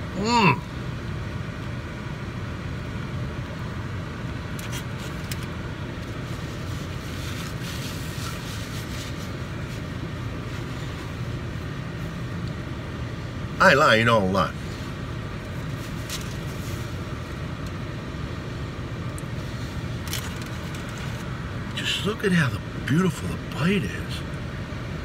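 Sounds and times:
car engine hum inside cabin: 0.0 - 25.0
paper napkin rustling: 4.6 - 11.3, 15.5 - 17.2, 19.4 - 21.4.

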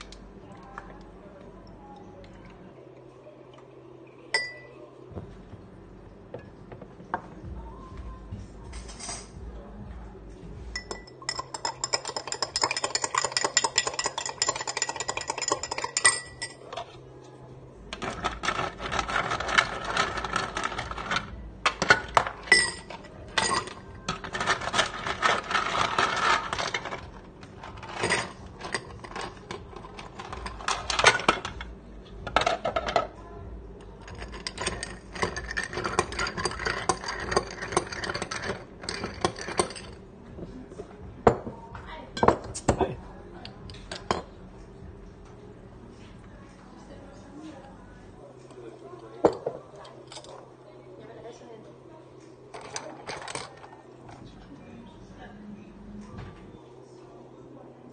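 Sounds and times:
ice clinking against glass: 4.3 - 4.8, 10.8 - 16.8, 21.7 - 27.0, 34.0 - 40.0
bar spoon stirring ice: 10.8 - 17.0, 18.0 - 31.5, 34.0 - 40.0.

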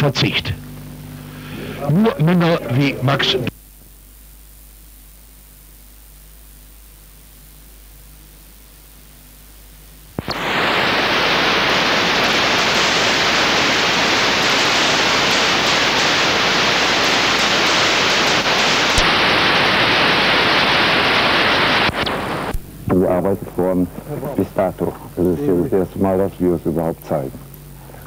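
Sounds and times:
video tape static hiss: 0.0 - 28.0.

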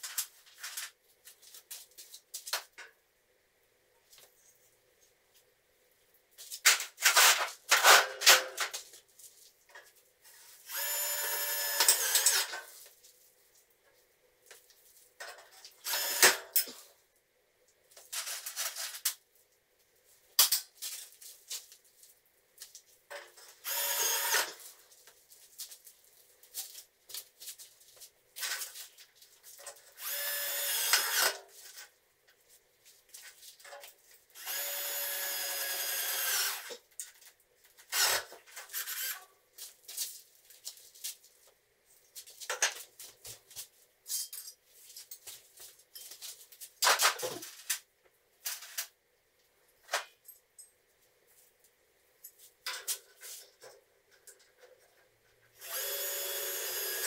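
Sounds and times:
cordless drill running: 10.7 - 12.5, 15.9 - 16.4, 23.6 - 24.5, 30.0 - 31.4, 34.4 - 36.7, 55.6 - 57.0.

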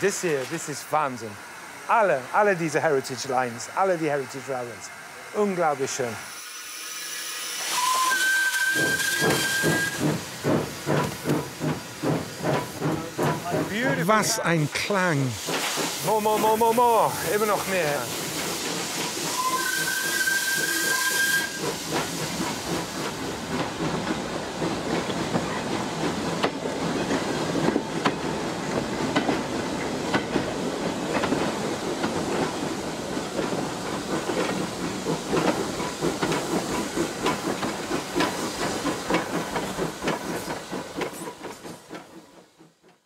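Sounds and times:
steam hissing: 0.0 - 42.7
steam locomotive whistle: 6.3 - 10.0, 19.3 - 21.8.

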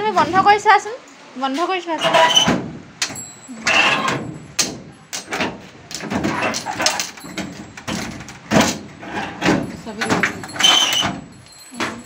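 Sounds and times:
metal scraping: 2.0 - 2.6, 3.5 - 4.6, 5.2 - 12.0
metal flap doors clacking: 2.0 - 12.0.

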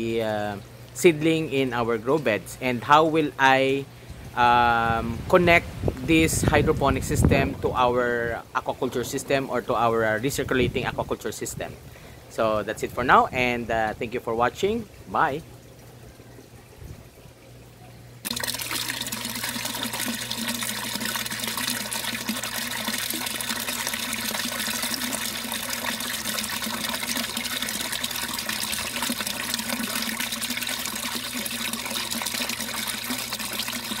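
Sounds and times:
water gushing into tank: 14.8 - 34.0.

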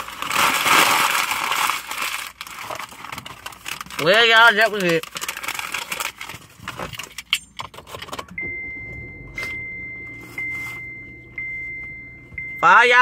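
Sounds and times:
car warning chime dinging: 7.3 - 13.0.

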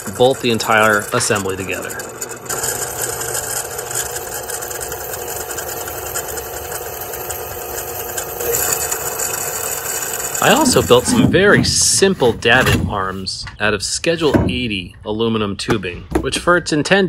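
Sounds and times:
electric drill cutting metal tube: 0.0 - 11.2.

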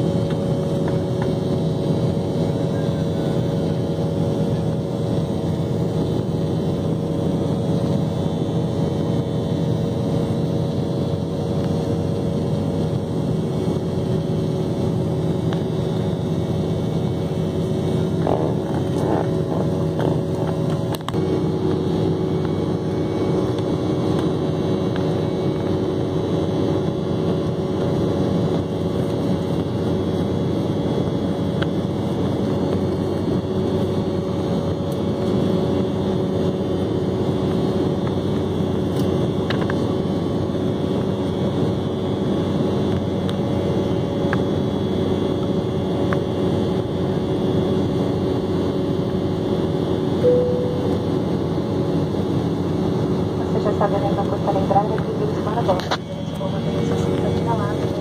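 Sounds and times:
jet cabin engine drone: 0.0 - 58.0
short tone: 50.2 - 51.7.

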